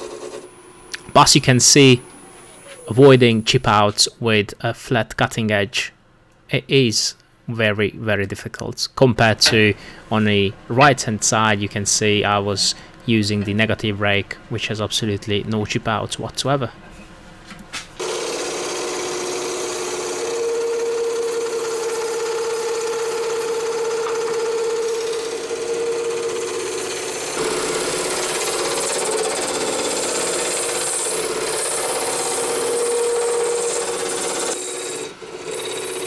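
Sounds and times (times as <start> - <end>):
wood lathe cutting: 18.0 - 36.0.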